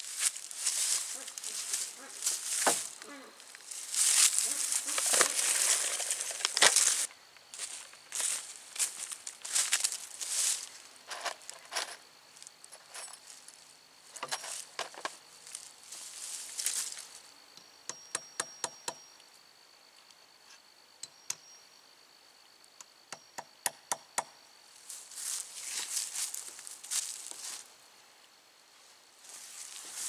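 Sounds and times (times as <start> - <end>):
dry leaves rustling underfoot: 0.0 - 12.0, 15.4 - 17.2, 24.8 - 27.7, 29.2 - 30.0.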